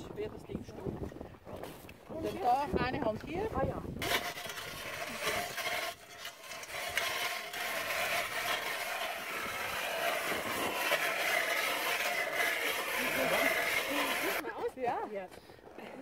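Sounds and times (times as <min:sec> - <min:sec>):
ice auger scraping through ice: 0:04.0 - 0:14.5.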